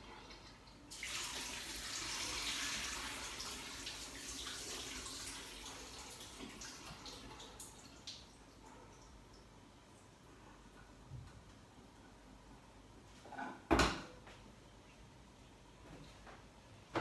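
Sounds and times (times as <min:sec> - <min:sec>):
tap water running into sink: 0:00.3 - 0:08.3.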